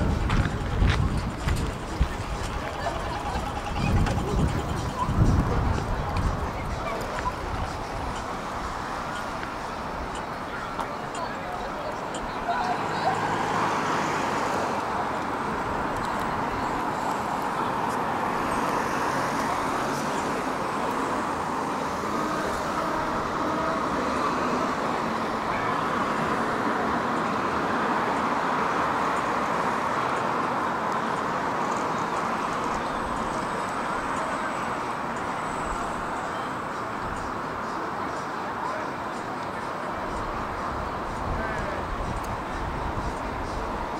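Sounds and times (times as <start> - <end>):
traffic rumble: 0.0 - 43.9.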